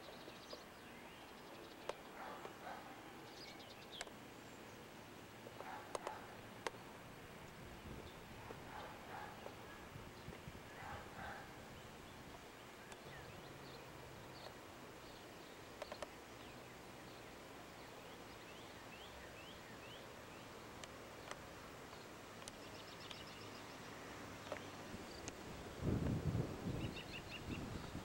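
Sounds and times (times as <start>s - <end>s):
faint outdoor ambience: 0.0s - 28.0s
soft clicks: 5.6s - 6.8s, 15.8s - 16.2s.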